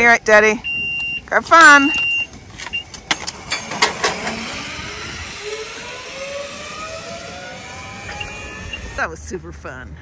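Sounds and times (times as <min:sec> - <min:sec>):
zipline trolley whirring on cable: 0:01.8 - 0:09.2.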